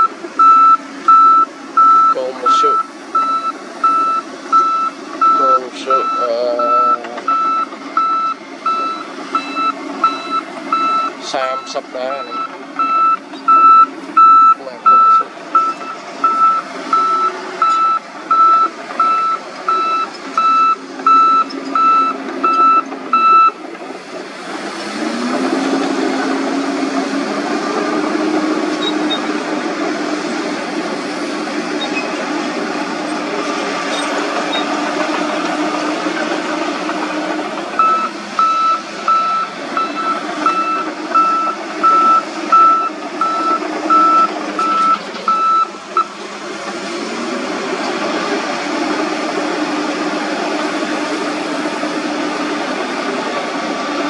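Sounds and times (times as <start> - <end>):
backup alarm beeping: 0.0 - 23.6, 37.8 - 46.1
bulldozer diesel engine: 0.0 - 54.0.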